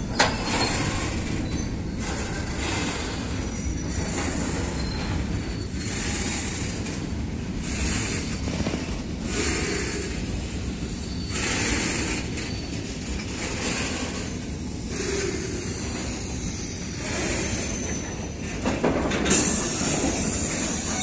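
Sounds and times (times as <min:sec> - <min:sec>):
train wheels rumbling on rails: 0:00.0 - 0:21.0
train hiss: 0:09.2 - 0:18.4, 0:19.2 - 0:21.0.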